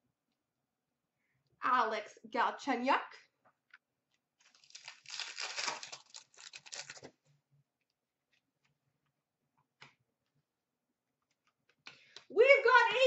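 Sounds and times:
wrapper tearing and crinkling: 4.4s - 7.1s.

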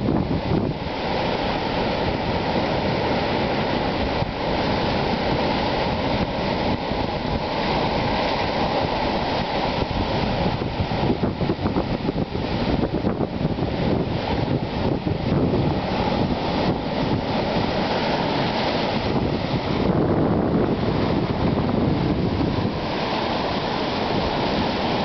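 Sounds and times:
ocean surf washing over rocks: 0.0s - 25.0s
wind buffeting microphone: 0.0s - 25.0s.

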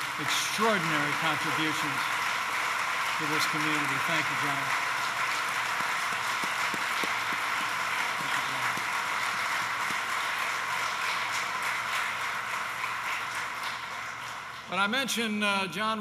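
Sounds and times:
crowd applauding: 0.0s - 15.2s.

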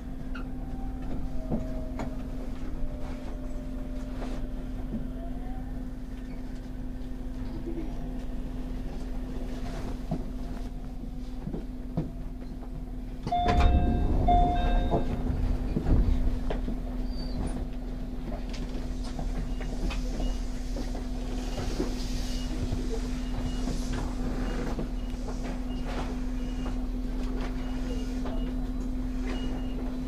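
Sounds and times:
low thumps and rumbling: 10.0s - 19.8s
electrical hum: 13.2s - 26.1s
two-part tone: 13.3s - 15.4s.

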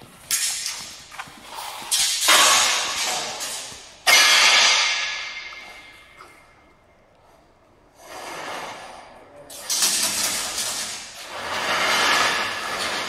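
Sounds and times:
steel bars clanging on metal: 1.9s - 6.2s.

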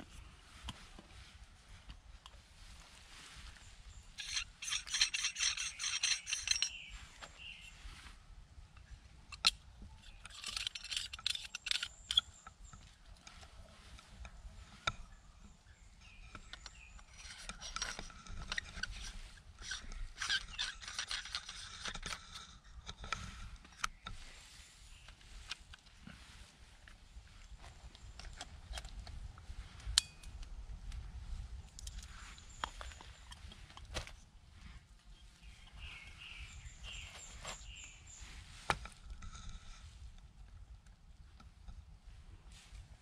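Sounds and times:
rapid scraping strokes: 4.2s - 8.1s.

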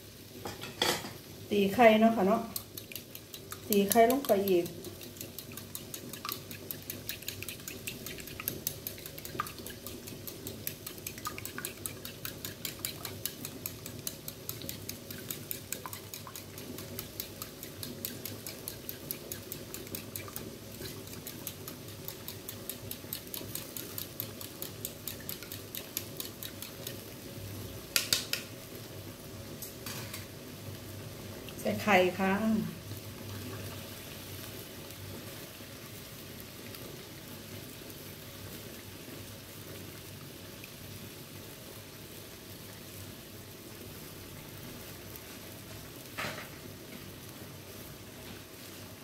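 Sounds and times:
fork beating eggs in bowl: 1.6s - 27.3s.

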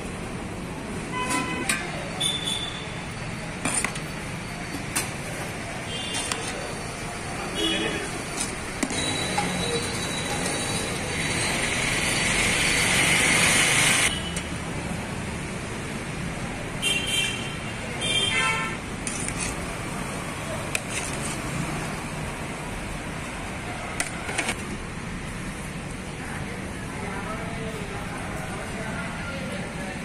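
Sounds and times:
road traffic noise: 0.0s - 30.0s.

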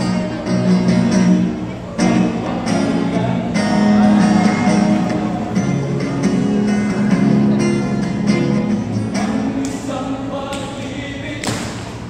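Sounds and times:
live band playing: 0.0s - 9.6s
acoustic and electric guitars: 0.0s - 12.0s
voices singing together: 2.1s - 5.9s, 9.0s - 11.7s.

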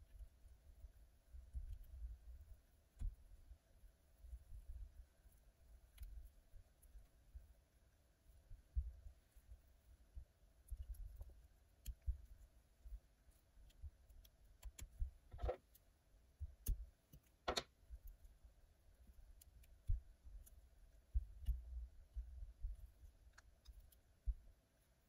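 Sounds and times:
faint handling clicks: 13.3s - 18.4s.

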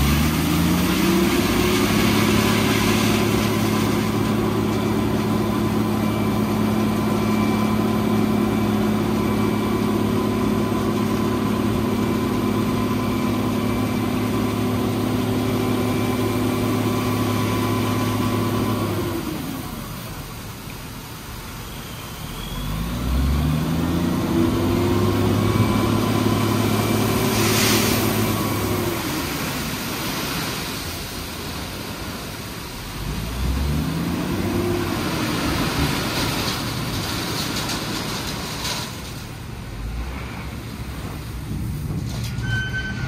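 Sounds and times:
diesel truck engine revving: 0.0s - 20.0s, 22.2s - 30.6s, 32.8s - 38.5s.

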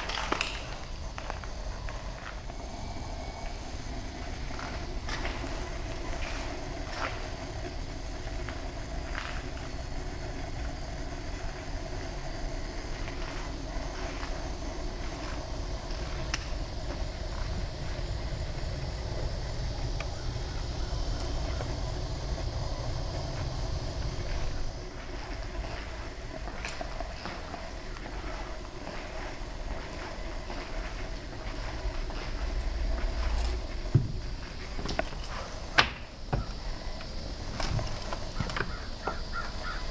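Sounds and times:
wind rumble and hiss: 0.0s - 39.9s.

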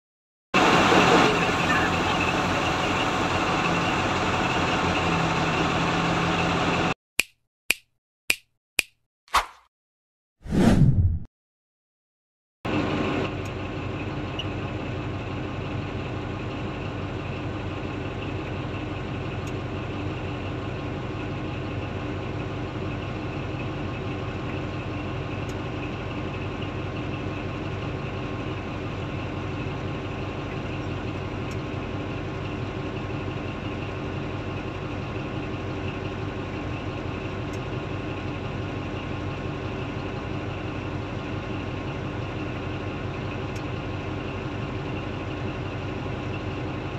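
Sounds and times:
heavy diesel engines droning: 0.6s - 7.0s, 12.7s - 46.9s.

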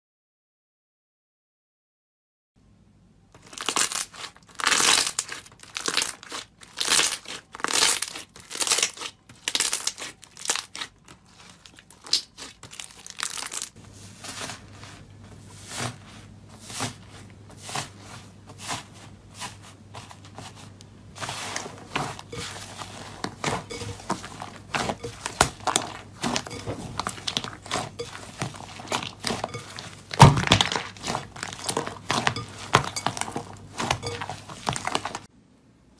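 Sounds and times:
slime squishing and popping: 3.4s - 13.8s, 23.2s - 35.3s.

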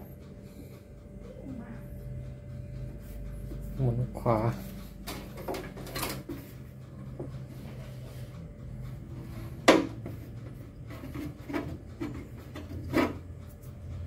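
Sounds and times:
steady low hum: 0.0s - 14.0s
knocks on fan motor: 9.6s - 10.2s.

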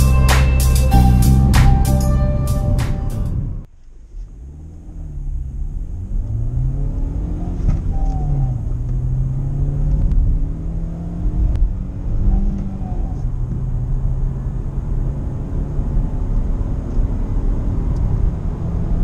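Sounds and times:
music: 0.0s - 3.7s
car engine accelerating: 0.0s - 19.0s.

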